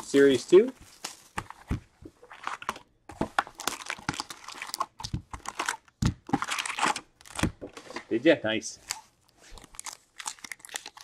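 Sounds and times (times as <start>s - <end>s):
foil wrappers tearing and crinkling: 3.4s - 7.5s, 8.8s - 11.0s.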